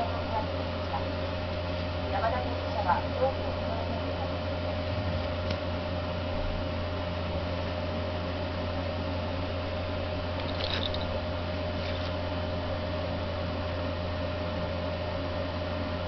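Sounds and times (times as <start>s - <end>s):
electrical hum: 0.0s - 16.0s
faint rustles: 11.7s - 12.2s.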